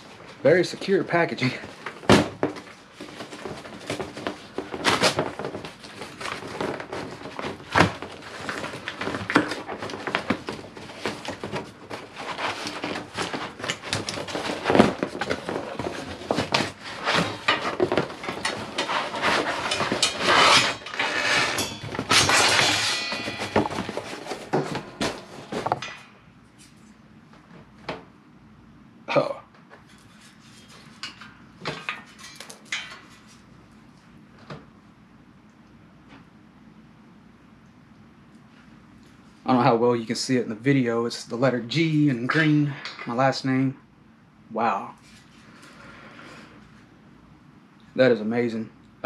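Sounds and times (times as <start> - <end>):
cardboard and packing crackling: 0.0 - 25.9
knocks and thumps: 12.7 - 26.0.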